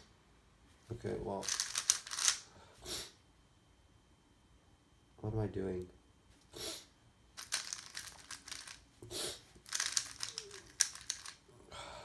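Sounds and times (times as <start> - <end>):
puzzle cube clicking and rattling: 1.4 - 2.4, 7.4 - 8.8, 9.6 - 11.4.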